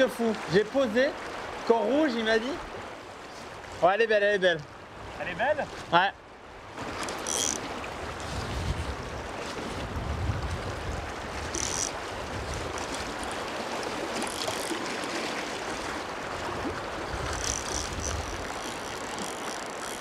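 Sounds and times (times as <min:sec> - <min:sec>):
river water rushing: 0:00.0 - 0:20.0
wind buffeting microphone: 0:08.0 - 0:13.3, 0:16.2 - 0:18.7.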